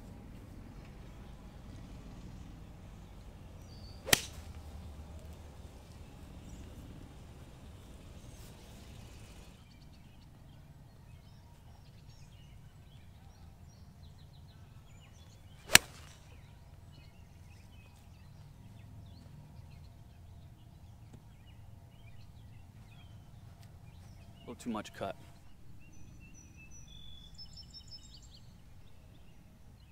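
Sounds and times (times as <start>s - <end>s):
golf club striking ball: 3.6s - 5.4s, 15.7s - 16.3s.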